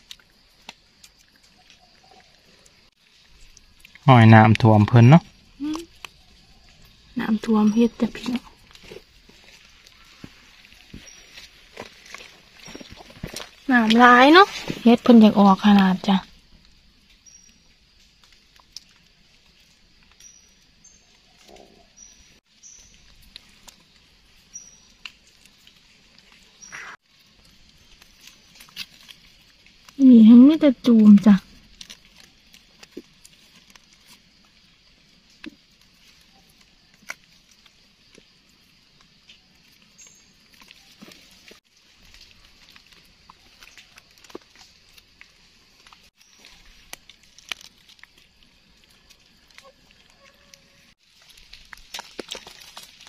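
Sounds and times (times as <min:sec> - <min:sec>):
hands rustling dry leaves: 0:05.7 - 0:16.1, 0:39.6 - 0:53.0.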